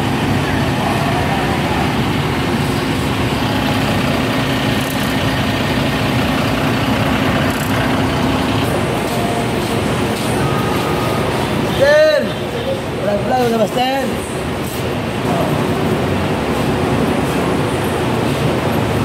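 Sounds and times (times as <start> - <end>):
bus engines idling: 0.0 - 19.0.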